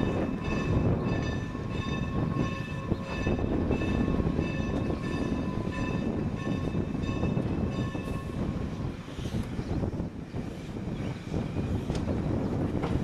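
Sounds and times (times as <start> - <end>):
high ringing tones: 0.0 - 8.4
steam locomotive rumble and hiss: 0.0 - 13.0.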